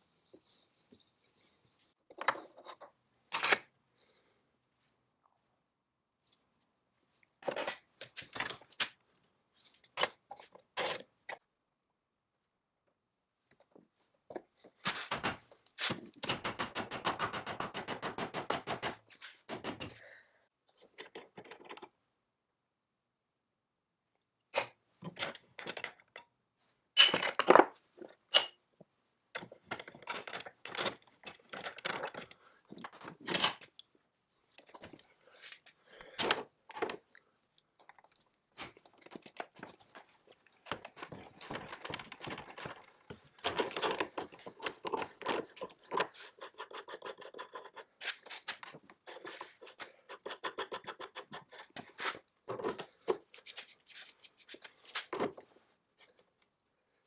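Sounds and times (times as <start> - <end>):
metal parts knocking and clanking: 29.4 - 33.7.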